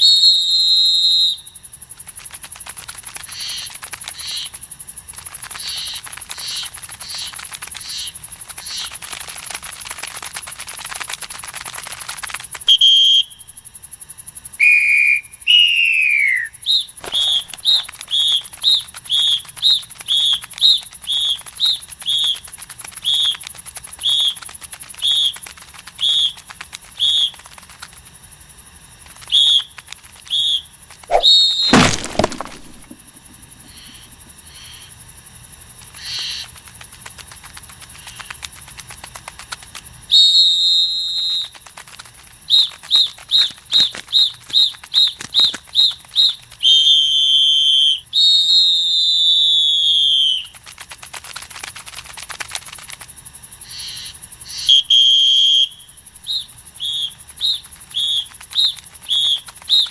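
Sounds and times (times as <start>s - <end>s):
sudden thump: 31.1s - 33.3s.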